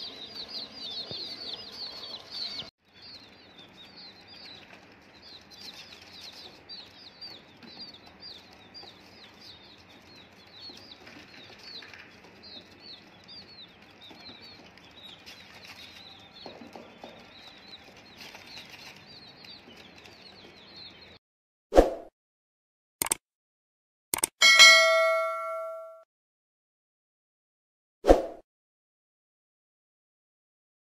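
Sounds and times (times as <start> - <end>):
chicks peeping: 0.0 - 21.2.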